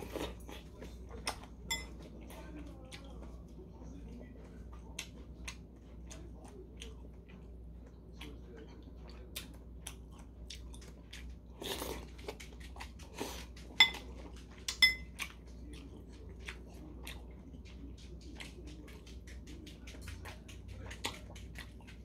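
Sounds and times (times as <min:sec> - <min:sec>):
metal chopsticks clinking on bowl: 0:01.7 - 0:02.1, 0:13.8 - 0:14.0, 0:14.7 - 0:15.1
wet chewing clicks: 0:02.6 - 0:22.0.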